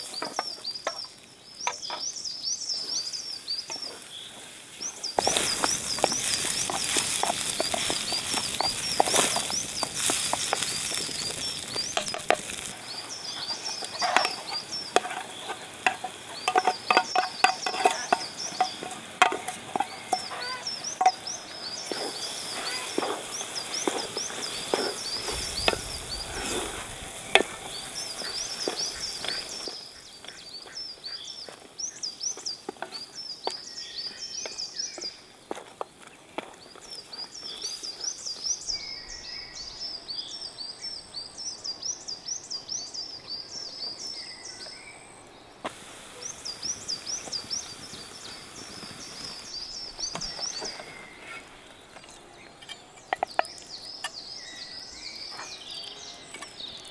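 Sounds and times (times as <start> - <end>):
food sizzling in a pot: 0.0 - 30.8, 45.6 - 52.0, 53.1 - 56.9
wooden spoon stirring: 5.2 - 12.8, 13.4 - 29.8.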